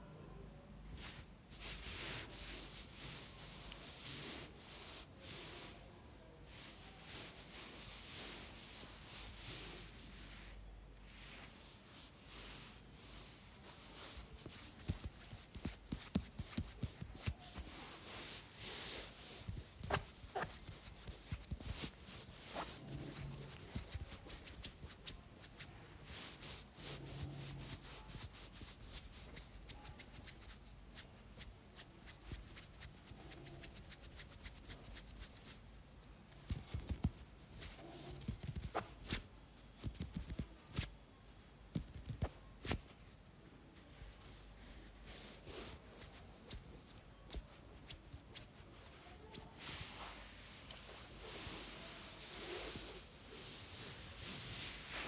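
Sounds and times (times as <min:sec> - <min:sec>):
fingertips rubbing skin: 0:14.4 - 0:17.7, 0:18.6 - 0:35.6, 0:36.4 - 0:39.2, 0:39.8 - 0:40.9, 0:41.7 - 0:42.9.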